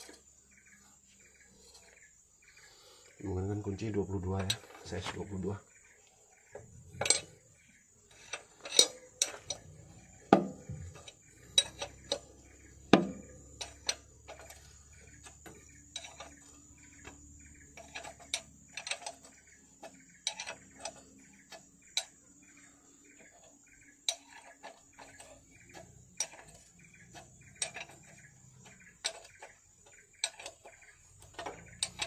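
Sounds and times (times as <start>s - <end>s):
spanner clicking on metal: 8.1s - 32.0s.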